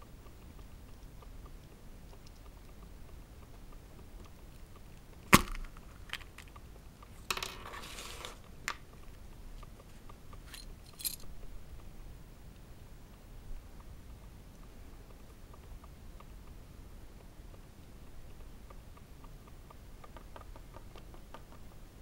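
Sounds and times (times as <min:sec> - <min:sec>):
plastic capsule snapping open: 0:05.4 - 0:06.4.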